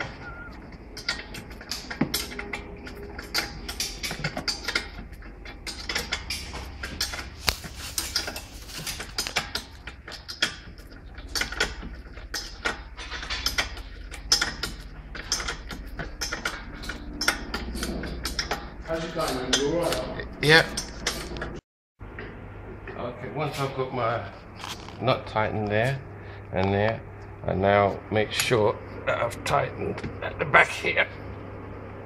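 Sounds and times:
spanner clicking and scraping: 0.9 - 21.6.

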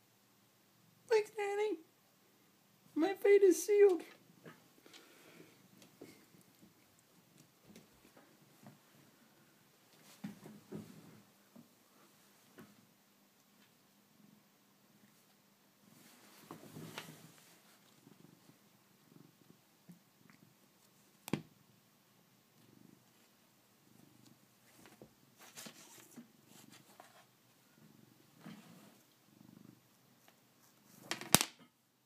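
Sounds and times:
cat purring: 14.0 - 31.1.

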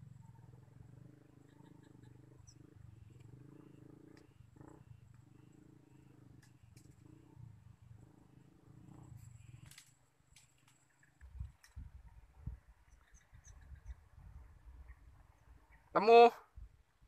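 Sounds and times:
faint low rumble: 0.0 - 15.9.

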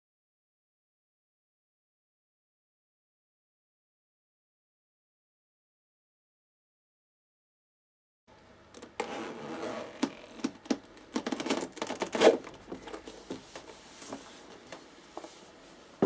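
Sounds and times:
leather scraping against metal: 9.0 - 10.4.

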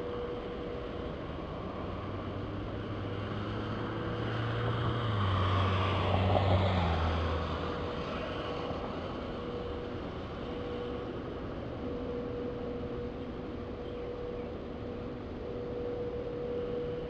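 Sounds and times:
vehicle passing on wet road: 2.9 - 9.4.

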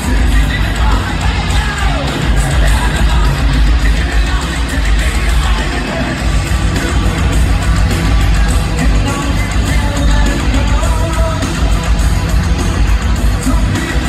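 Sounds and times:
distorted electric guitar: 0.0 - 14.0
drums: 0.0 - 14.0.

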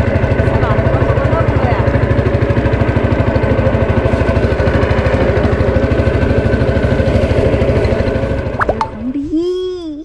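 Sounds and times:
boat engine running: 0.0 - 10.0.

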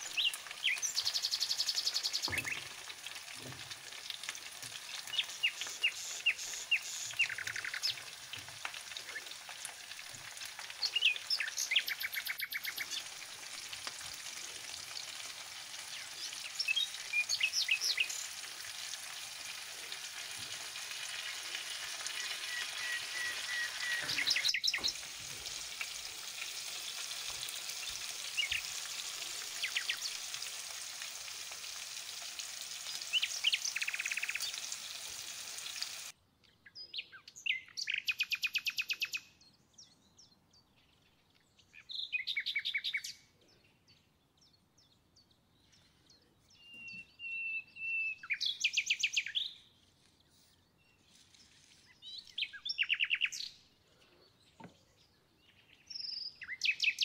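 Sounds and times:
food sizzling in a frying pan: 0.0 - 36.2
small birds chirping: 0.0 - 57.0.

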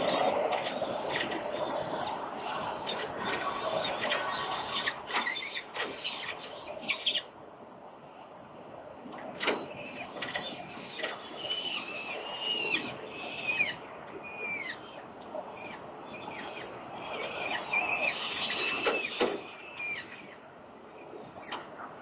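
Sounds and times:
falcon chicks calling: 10.0 - 15.0.

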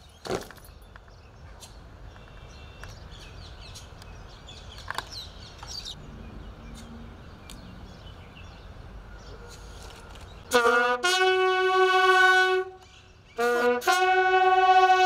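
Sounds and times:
birds chirping: 0.0 - 10.5, 12.7 - 13.7
faint clicks of rifles and boots: 9.5 - 10.4.

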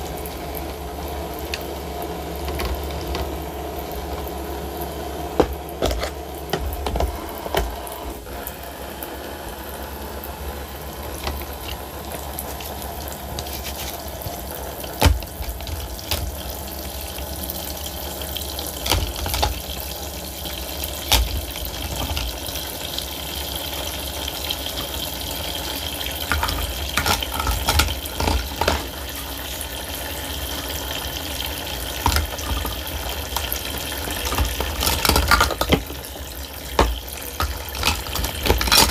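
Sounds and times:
water running and splashing: 10.1 - 38.9
plastic toy pieces clicking: 26.3 - 28.9, 34.2 - 36.0, 36.7 - 38.9.

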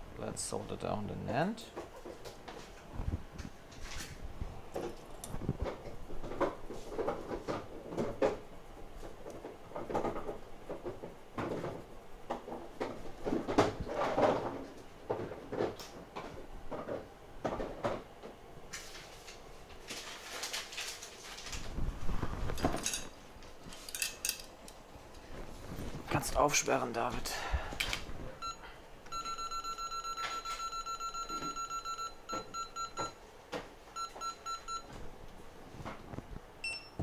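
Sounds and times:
tools knocking and clattering: 22.6 - 23.1.

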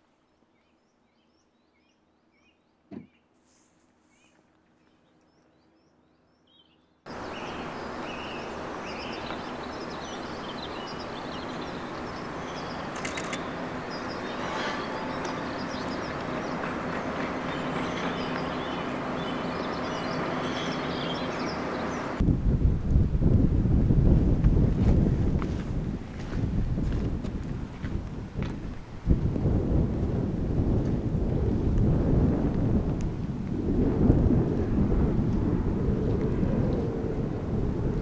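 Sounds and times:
birds chirping: 4.1 - 22.2
outdoor rushing noise: 7.1 - 38.0.

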